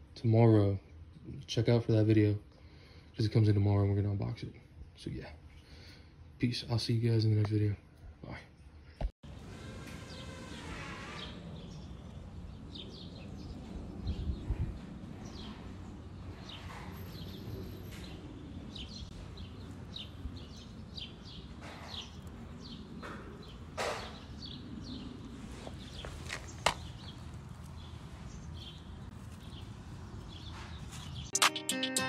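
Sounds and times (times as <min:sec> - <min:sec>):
small birds chirping: 0:11.2 - 0:31.4
rustling: 0:19.1 - 0:31.3.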